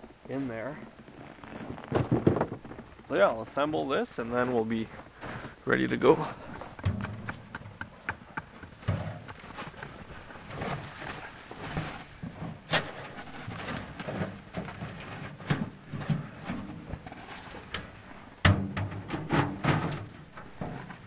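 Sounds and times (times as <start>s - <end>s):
rustling and shuffling: 0.0s - 21.0s
sheet metal clanks and knocks: 6.8s - 7.9s, 18.4s - 20.9s.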